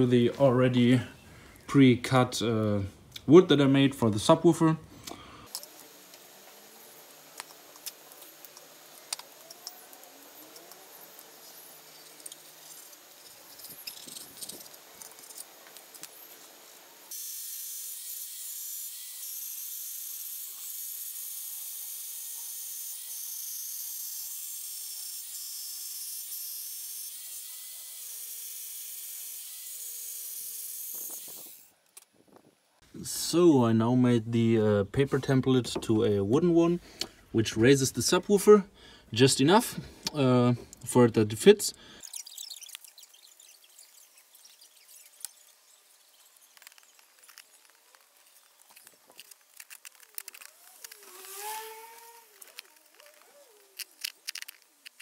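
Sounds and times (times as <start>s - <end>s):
jigsaw cutting wood: 50.0s - 53.8s.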